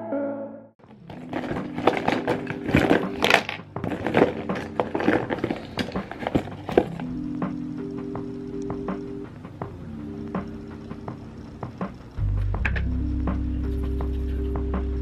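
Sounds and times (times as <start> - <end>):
plastic makeup products clattering: 0.8 - 7.1.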